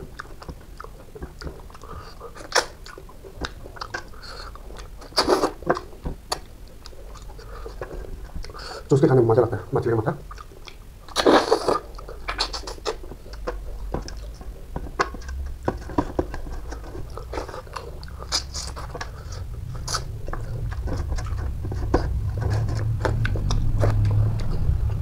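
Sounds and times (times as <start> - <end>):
close-up chewing food: 0.0 - 25.0
wet mouth clicks: 10.2 - 19.2.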